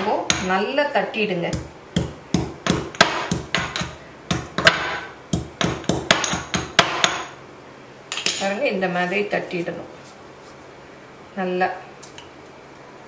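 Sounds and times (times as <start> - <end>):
pestle pounding in ceramic mortar: 1.5 - 7.3.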